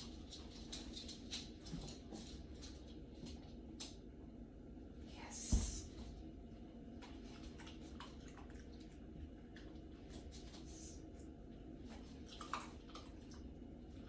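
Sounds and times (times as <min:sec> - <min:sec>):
dog paws tapping on wooden floor: 0:00.0 - 0:04.0.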